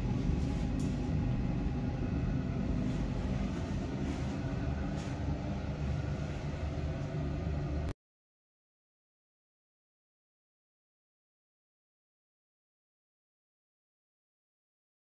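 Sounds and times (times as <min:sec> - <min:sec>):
low background rumble: 0:00.0 - 0:07.9.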